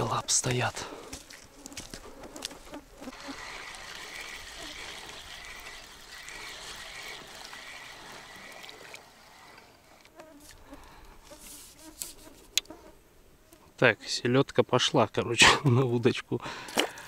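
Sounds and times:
shallow river water trickling: 1.0 - 12.2, 16.5 - 17.0.

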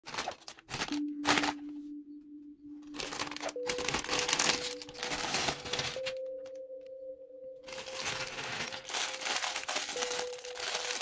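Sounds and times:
plastic bag crinkling and tearing: 0.0 - 1.6, 2.8 - 6.5, 7.7 - 11.0
soft background music: 0.1 - 11.0.

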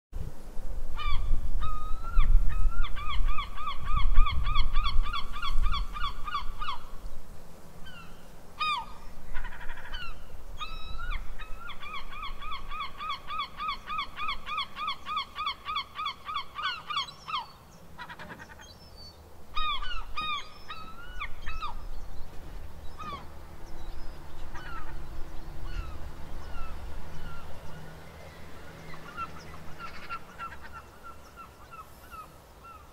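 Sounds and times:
gull yelps and mewing: 1.0 - 6.9, 7.8 - 18.7, 19.5 - 21.8, 23.0 - 23.3, 24.5 - 27.5, 28.9 - 32.9
gulls laughing calls: 7.8 - 18.9, 19.5 - 21.9, 22.9 - 32.9.

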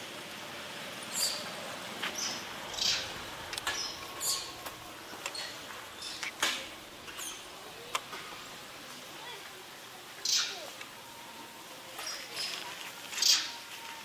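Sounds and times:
high chirps and squeaks: 2.2 - 4.6, 7.1 - 7.5.

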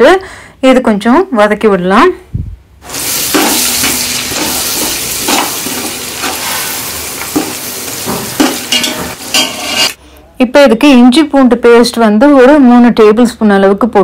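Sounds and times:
spices sizzling in hot oil: 2.8 - 10.0
spatula scraping metal pot: 3.6 - 10.0.

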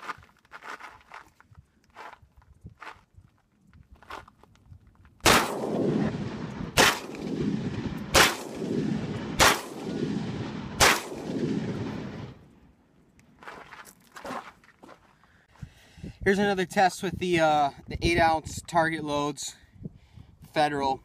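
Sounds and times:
shotgun shots echoing: 5.2 - 12.3.

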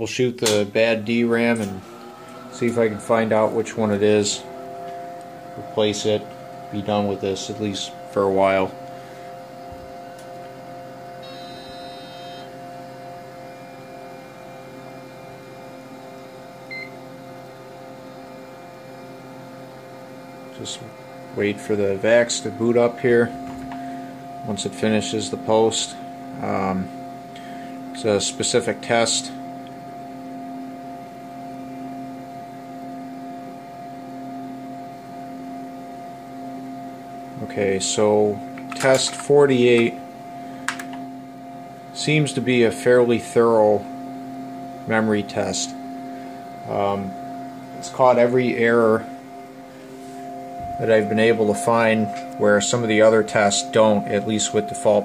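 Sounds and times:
faint high whine: 0.0 - 16.0, 20.5 - 29.4, 37.4 - 41.2, 41.9 - 55.0
computer fans humming: 0.0 - 55.0
constant tones: 0.1 - 15.3, 44.9 - 55.0
short electronic beep: 11.2 - 12.5.

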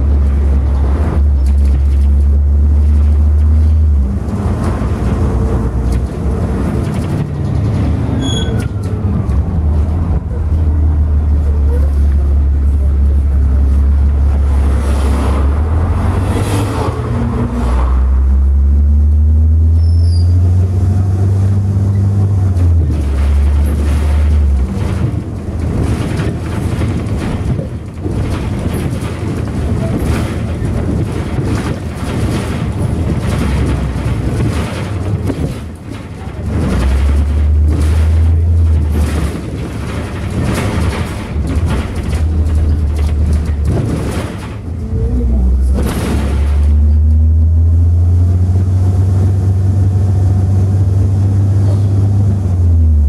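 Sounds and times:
body knocks and rattles: 0.0 - 8.2, 22.4 - 47.3
bus engine drone: 0.0 - 53.0
road rumble: 0.0 - 53.0.

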